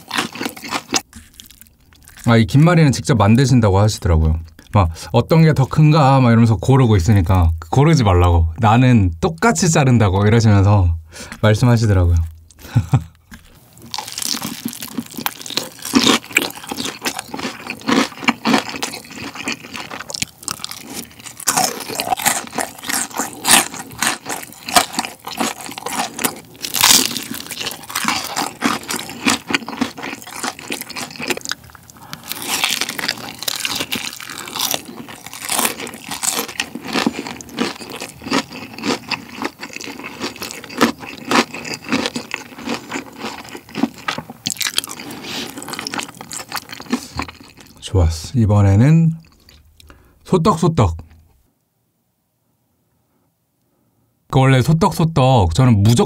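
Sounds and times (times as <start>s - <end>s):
crunchy chewing: 0.0s - 2.4s, 13.2s - 47.8s.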